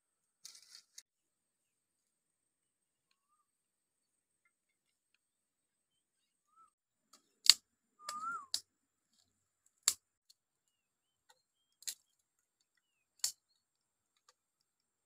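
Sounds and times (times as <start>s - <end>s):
short whistled chirp: 6.5s - 6.8s, 8.0s - 8.6s.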